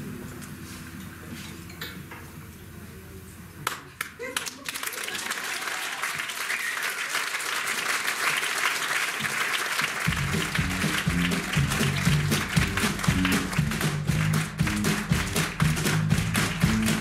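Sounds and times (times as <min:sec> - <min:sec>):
audience applauding: 0:04.0 - 0:17.0
band with bass and drums: 0:10.1 - 0:17.0.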